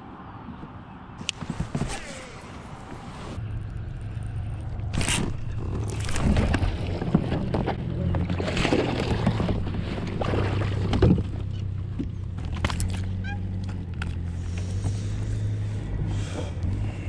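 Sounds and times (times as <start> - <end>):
low hum: 1.2 - 17.0
fish splashing in water: 5.0 - 7.2.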